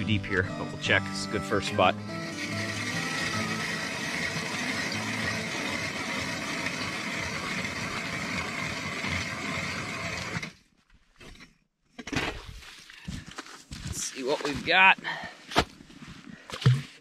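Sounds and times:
ice auger grinding through ice: 1.7s - 10.6s.

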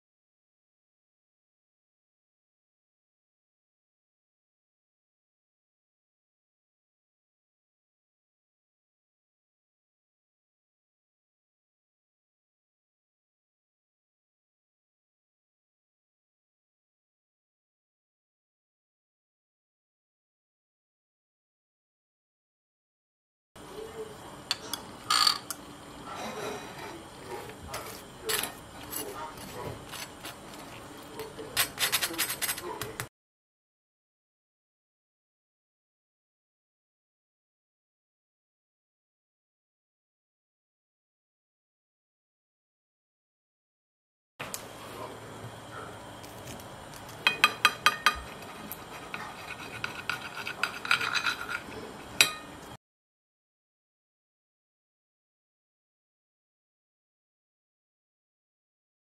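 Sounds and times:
knife scraping toast: 26.2s - 32.9s, 48.2s - 52.4s.

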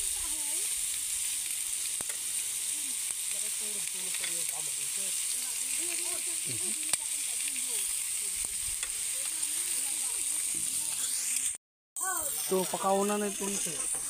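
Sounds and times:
meat sizzling on a grill pan: 0.0s - 14.0s
metal tongs clicking on grill: 3.8s - 4.6s.

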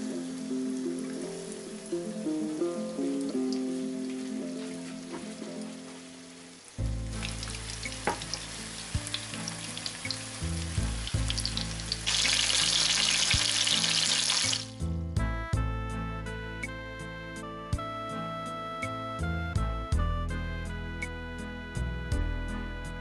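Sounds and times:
food frying in hot oil: 0.0s - 14.7s
background music: 0.0s - 23.0s.

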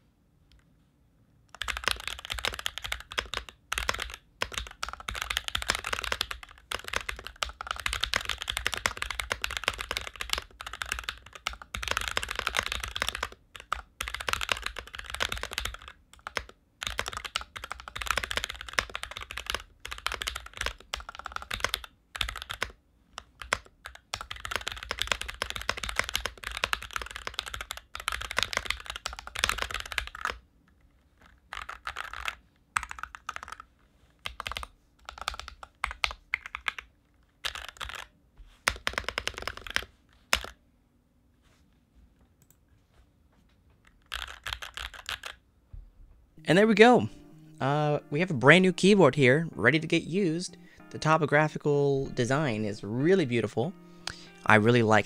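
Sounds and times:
mechanical keyboard keystrokes clacking: 1.5s - 30.4s, 38.7s - 40.5s, 44.1s - 45.4s.

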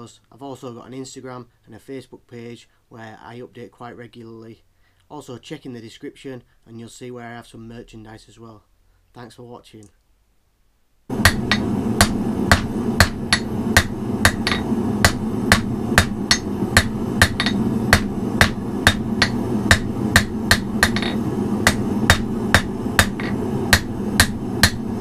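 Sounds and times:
hammer striking steel on anvil: 11.1s - 24.9s
low rushing noise: 11.1s - 25.0s.

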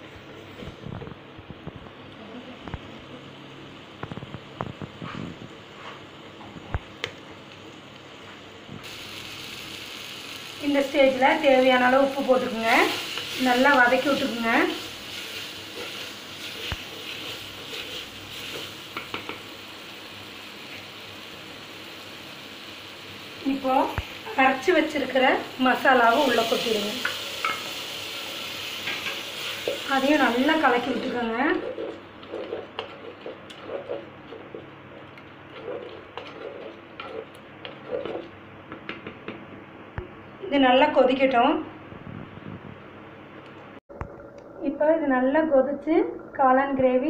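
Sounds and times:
mushrooms sizzling in oil: 7.4s - 31.6s
spoon stirring thick gravy: 31.5s - 39.0s
wooden spatula knocking against pot: 38.7s - 39.5s.

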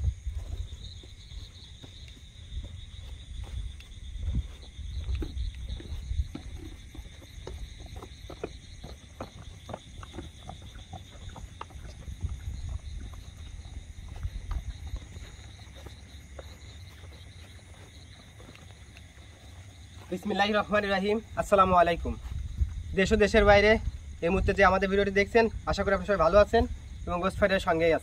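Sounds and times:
steady low rumble: 0.0s - 8.8s, 21.2s - 27.1s
crickets trilling: 0.0s - 28.0s.

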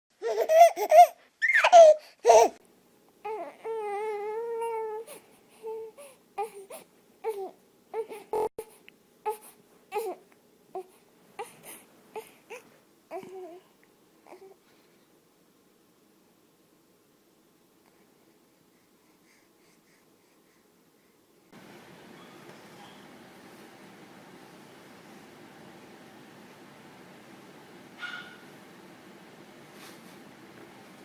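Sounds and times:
infant crying: 0.2s - 2.6s, 3.2s - 8.5s.

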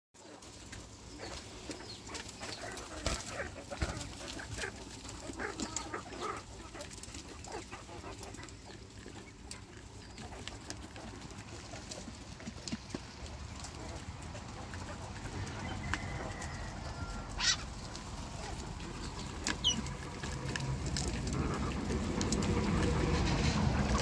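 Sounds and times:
pecking and scratching in dry litter: 0.2s - 24.0s
quail chirping: 0.5s - 12.7s, 13.6s - 20.2s.

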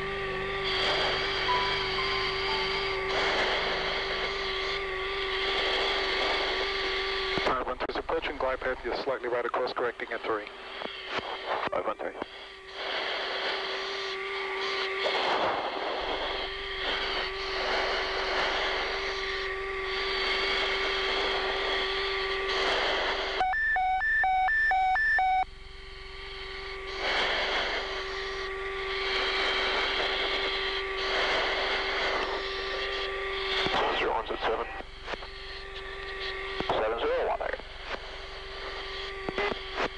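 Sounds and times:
jet engine and air noise: 0.0s - 25.5s, 26.6s - 35.2s
electrical hum: 0.0s - 39.9s
rapid beeping: 23.4s - 25.5s.

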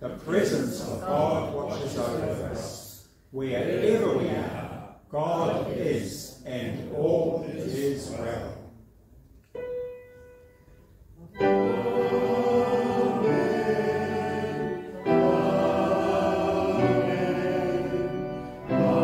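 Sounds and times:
congregation singing a hymn: 0.3s - 8.6s, 11.3s - 19.0s
instrumental accompaniment: 9.5s - 19.0s.

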